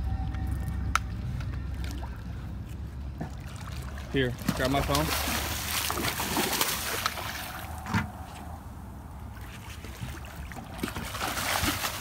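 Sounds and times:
spillway water rushing: 3.1 - 12.0
fish splashing at water surface: 3.2 - 8.6, 9.3 - 12.0.

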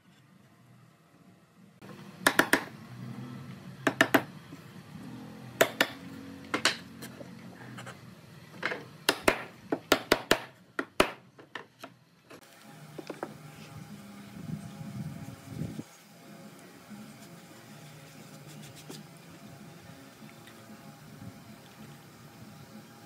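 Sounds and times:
wooden boards knocking: 3.9 - 4.3.

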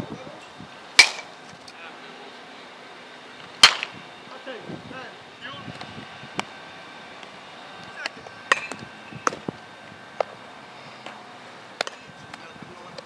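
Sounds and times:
bat hitting baseball: 1.0 - 1.3, 3.6 - 4.0, 8.0 - 9.5.

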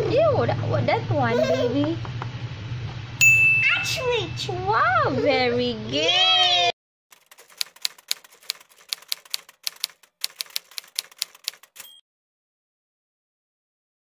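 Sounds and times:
typewriter bell ring: 7.2 - 12.0
typewriter keystroke clicks: 7.2 - 12.0.

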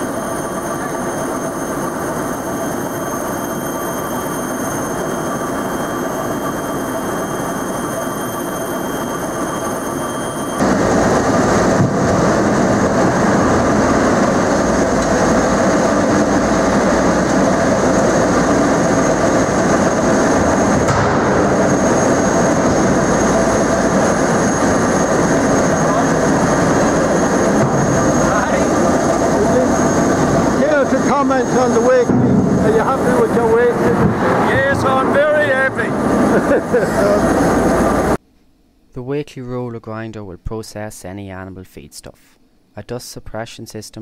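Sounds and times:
high whining tones: 0.0 - 38.2
roller grinder running: 10.2 - 38.2.

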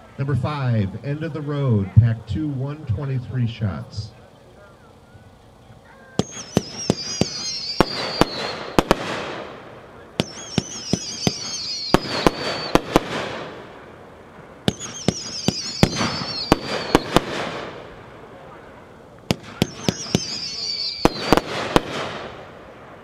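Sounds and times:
firework hissing rush: 4.9 - 23.0
firework whistle: 6.1 - 13.6, 14.6 - 18.0, 18.6 - 22.5
firework bangs: 6.1 - 23.0.

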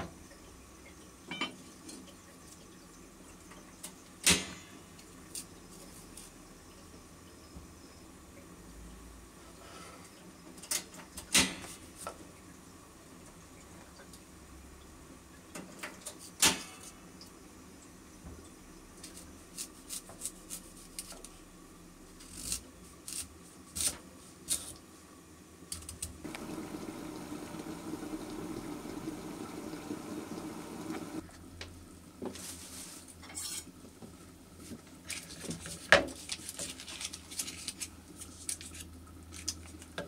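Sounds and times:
water-like rushing: 26.2 - 31.2.

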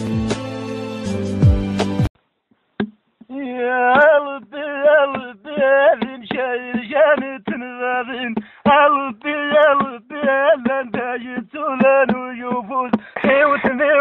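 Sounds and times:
music: 0.0 - 2.1
man singing unaccompanied: 3.2 - 14.0.

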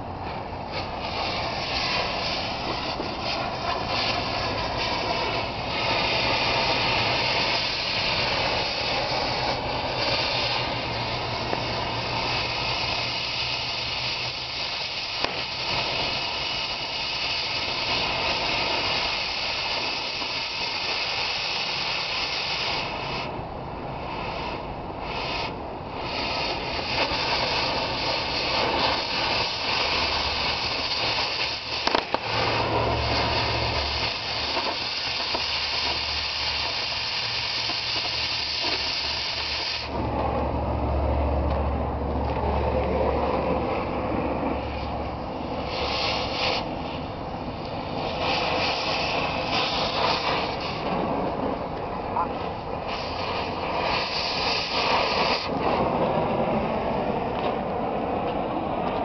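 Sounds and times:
cutting torch hissing: 0.0 - 59.0
low engine hum: 39.9 - 45.8, 55.5 - 59.0.

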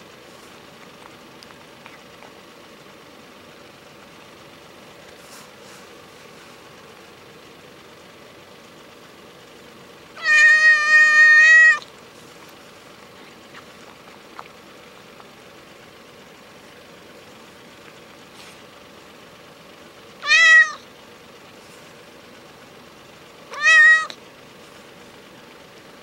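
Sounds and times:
cat meowing: 10.2 - 11.9, 20.2 - 20.9, 23.5 - 24.2.

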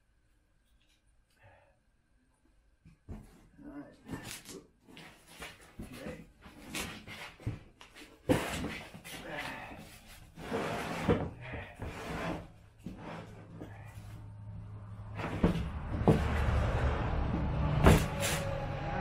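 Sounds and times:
cardboard rustling and scraping: 3.1 - 14.2, 15.1 - 16.6
low rumble: 13.6 - 19.0.

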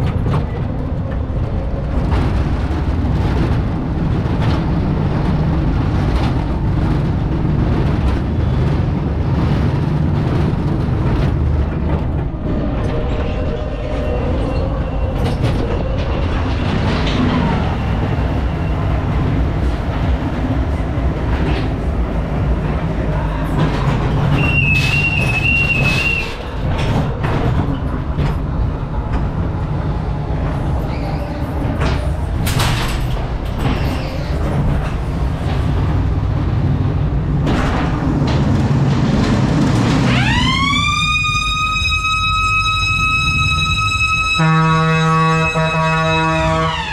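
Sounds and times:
fairground noise: 0.0 - 46.9
siren-like wail: 40.1 - 46.9.

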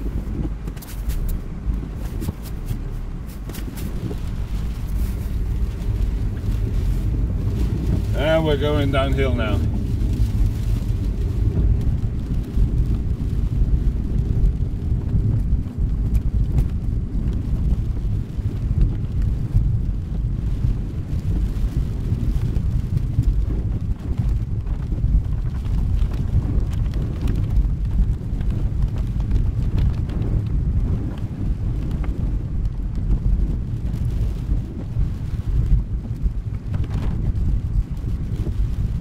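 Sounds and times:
car engine rumble: 0.0 - 39.0
tyres on wet road: 0.0 - 39.0.

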